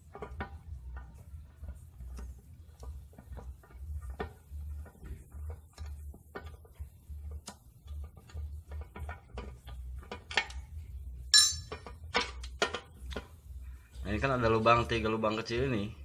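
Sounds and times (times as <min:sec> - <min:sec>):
low steady hum: 0:00.0 - 0:16.0
small metal clicks and taps: 0:07.3 - 0:10.7, 0:11.6 - 0:13.4
ringing metallic clink: 0:11.3 - 0:11.8.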